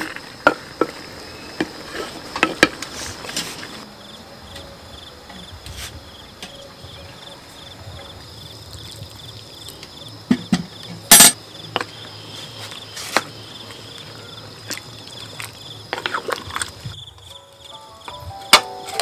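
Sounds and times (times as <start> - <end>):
crickets chirping: 0.0 - 19.0
hard objects knocking: 10.3 - 11.4.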